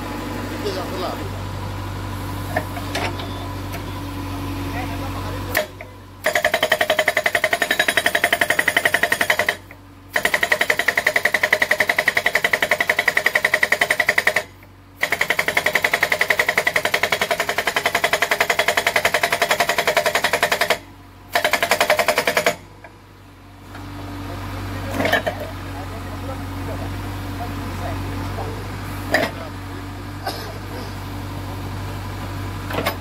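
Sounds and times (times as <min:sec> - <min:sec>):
hydraulic rock breaker hammering: 0:05.5 - 0:23.0, 0:29.1 - 0:29.5.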